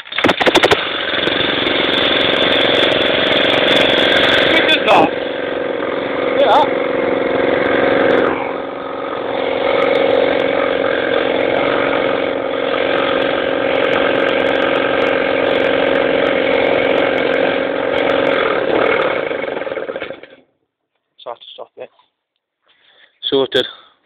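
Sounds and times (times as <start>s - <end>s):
lawn mower engine running: 0.0s - 20.5s.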